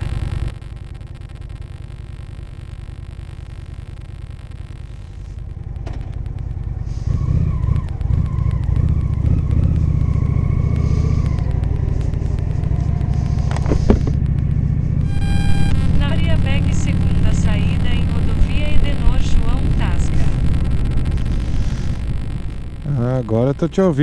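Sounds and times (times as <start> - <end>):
sharp clicks: 5.4 - 22.9
motorcycle engine pulling away: 6.7 - 15.0.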